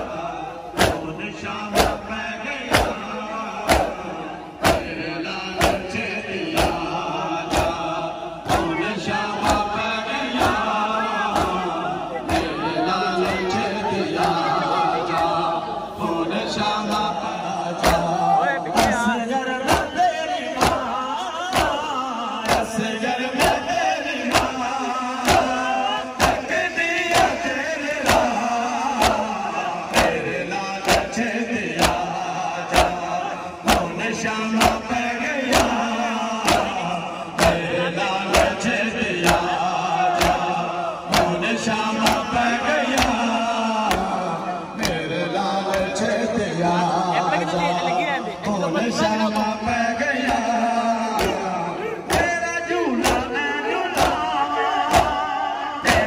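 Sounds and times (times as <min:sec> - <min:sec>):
men chanting in unison: 0:00.0 - 0:56.0
hands slapping bare chests: 0:00.8 - 0:01.1, 0:01.7 - 0:02.1, 0:03.7 - 0:04.0, 0:04.6 - 0:04.9, 0:05.6 - 0:05.9, 0:17.8 - 0:18.1, 0:20.6 - 0:20.9, 0:21.5 - 0:21.8, 0:22.4 - 0:22.7, 0:24.3 - 0:24.6, 0:26.2 - 0:26.5, 0:28.0 - 0:30.2, 0:30.8 - 0:31.1, 0:31.8 - 0:32.1, 0:32.7 - 0:33.9, 0:35.4 - 0:35.8, 0:36.4 - 0:36.8, 0:39.2 - 0:40.5, 0:41.1 - 0:41.4, 0:42.0 - 0:43.2, 0:52.0 - 0:52.3, 0:53.0 - 0:53.3, 0:53.9 - 0:54.2, 0:54.8 - 0:55.2.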